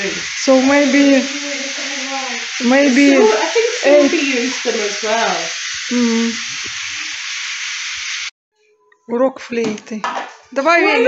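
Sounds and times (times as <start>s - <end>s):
people talking: 0.0s - 6.4s, 10.6s - 11.0s
food sizzling in a frying pan: 0.0s - 8.3s.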